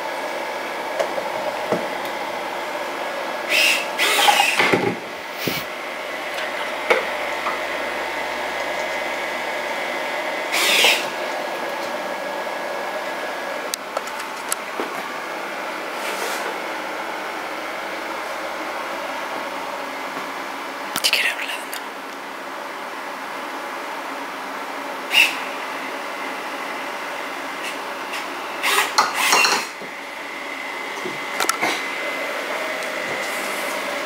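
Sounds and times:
steady electrical hum: 0.0 - 34.0
servo motors whirring: 3.5 - 4.7, 5.3 - 5.7, 10.5 - 11.1.

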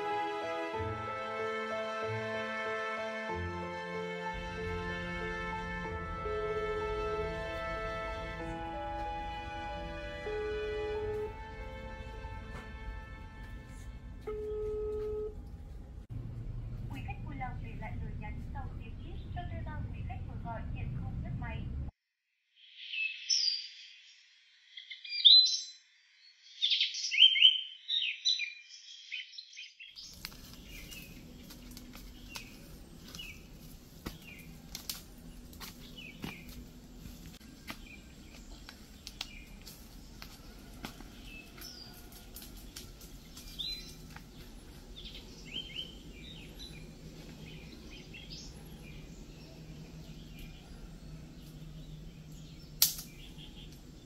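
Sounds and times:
low outdoor hum: 3.5 - 21.9, 30.0 - 54.0
birds chirping: 26.5 - 54.0
twigs snapping in brush: 30.0 - 36.7, 37.7 - 44.5, 52.8 - 53.9.

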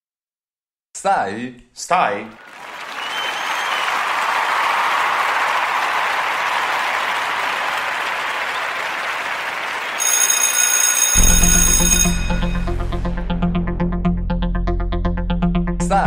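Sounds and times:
recorded applause: 2.2 - 12.7
high ringing tone: 10.0 - 12.8
electronic music with heavy bass: 12.2 - 16.0.

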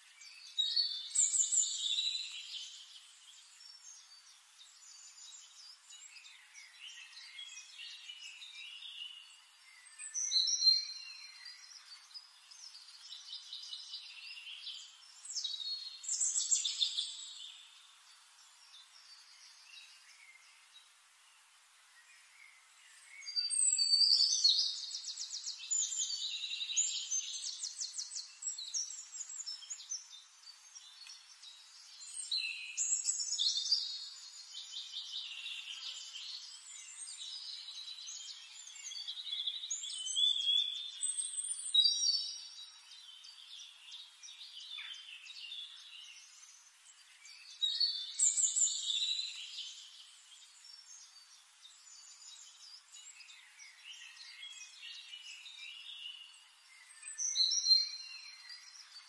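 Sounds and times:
bird trills and chirps: 23.2 - 51.2.

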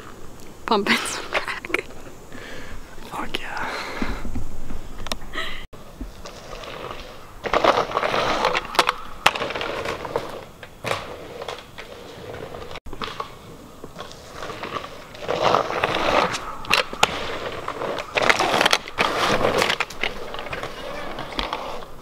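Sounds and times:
scooter wheels crunching over dirt: 0.0 - 22.0.

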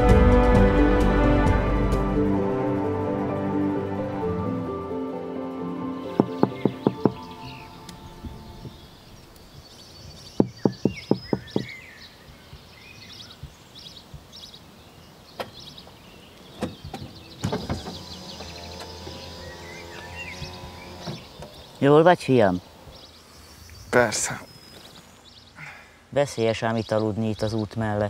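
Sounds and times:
songbirds chirping: 2.5 - 28.0
outdoor background noise: 2.6 - 28.0
sharp knocks: 6.2 - 7.3, 10.4 - 11.8.

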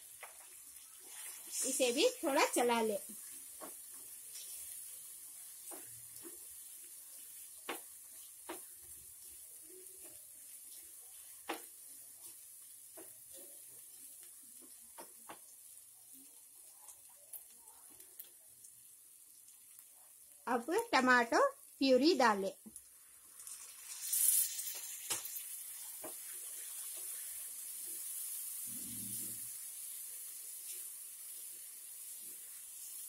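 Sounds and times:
food sizzling in a pan: 0.0 - 33.0
spatula scraping a pan: 0.4 - 1.8, 3.2 - 14.8, 23.5 - 33.0.

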